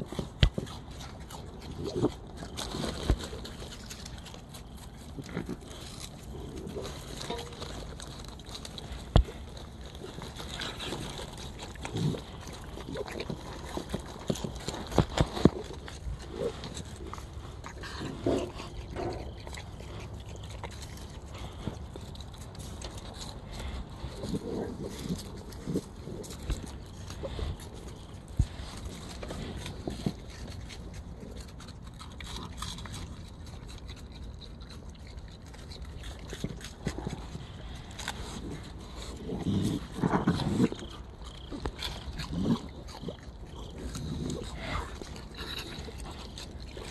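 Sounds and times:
crunching: 0.0s - 46.9s
raccoons chewing food: 0.0s - 46.9s
plastic bag crinkling: 2.0s - 18.0s.

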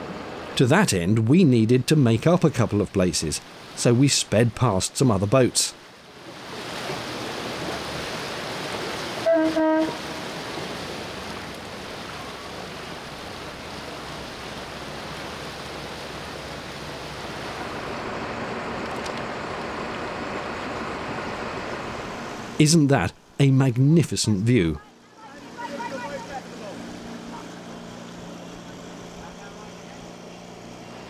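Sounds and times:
motor boat rushing at speed: 5.8s - 22.6s, 24.4s - 31.0s
boat horn toot: 9.2s - 10.4s, 24.8s - 30.2s.

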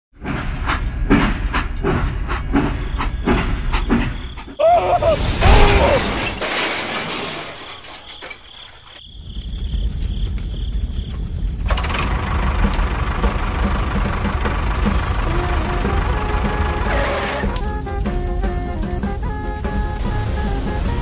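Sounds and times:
train clattering along rails: 0.2s - 4.6s, 10.1s - 21.0s
derailment crash with screech: 2.8s - 9.0s, 13.8s - 17.6s.

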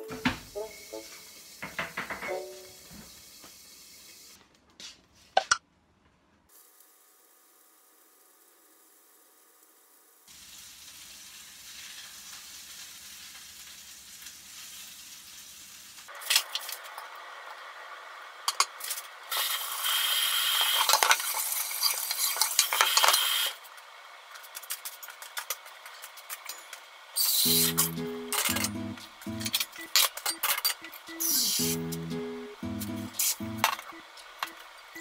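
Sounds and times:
clattering clicks and knocks: 1.6s - 2.4s.

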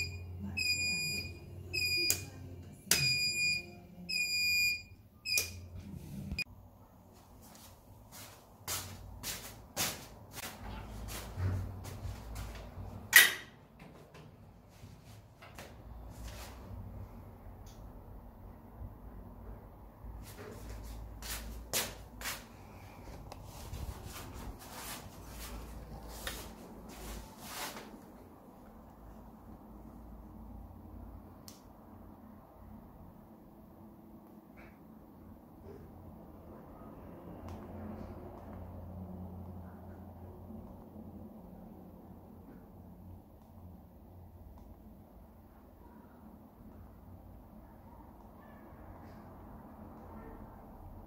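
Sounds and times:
high-pitched turn-signal beeps: 0.0s - 2.3s.

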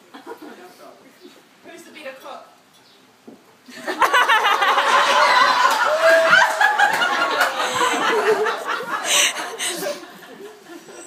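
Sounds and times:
crowd laughing: 3.7s - 11.0s.

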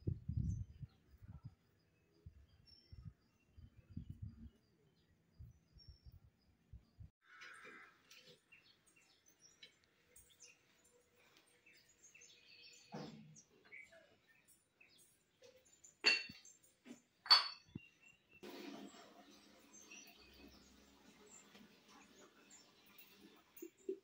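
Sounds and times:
ceramic pottery clinking: 16.0s - 17.9s.

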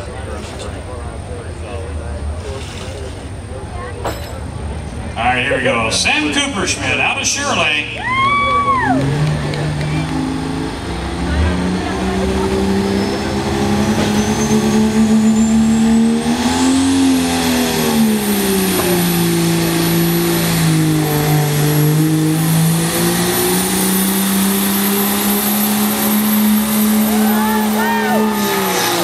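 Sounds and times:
diesel engine at full throttle: 0.0s - 29.0s
high turbo whine: 4.9s - 29.0s.

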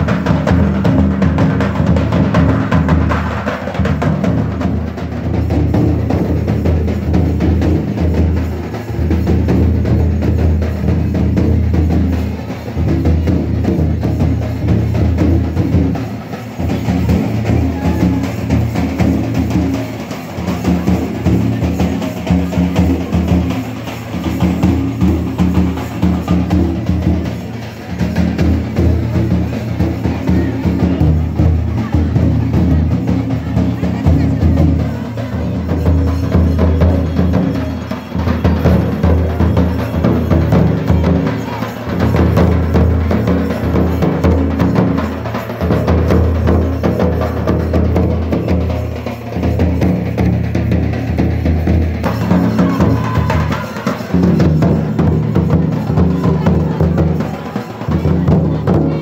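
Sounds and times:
folk music with dense drumming: 0.0s - 59.0s.

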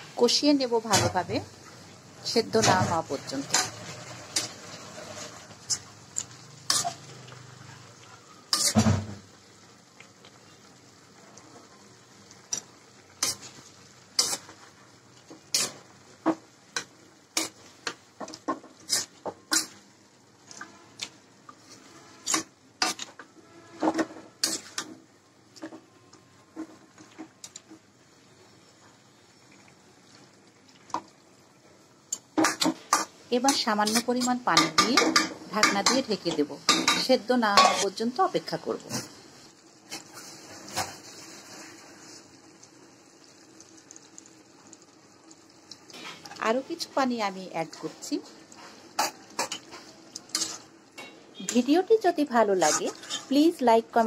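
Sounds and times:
faint frying sizzle: 0.0s - 54.0s
spatula scraping metal wok: 2.6s - 7.8s, 8.5s - 9.0s, 12.5s - 14.6s, 15.3s - 15.9s, 16.8s - 19.8s, 21.6s - 25.0s, 32.4s - 38.0s, 47.8s - 53.5s.

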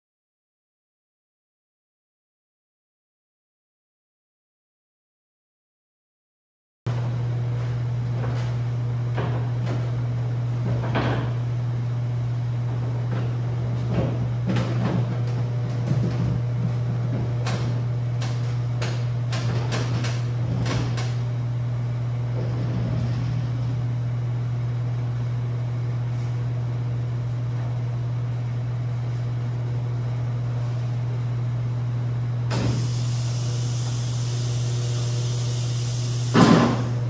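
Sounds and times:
steady low hum: 6.9s - 37.0s
liftgate hiss: 32.5s - 37.0s.

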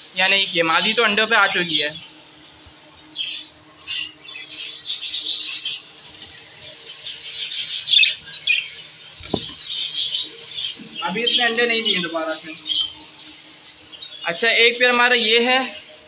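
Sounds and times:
budgerigars chattering: 3.1s - 16.0s
short knock: 9.2s - 9.7s.

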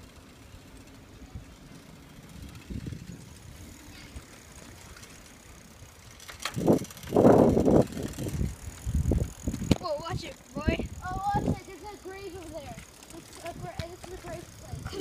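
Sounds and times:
wind rushing on microphone: 2.4s - 3.7s, 6.5s - 11.7s, 13.4s - 15.0s.

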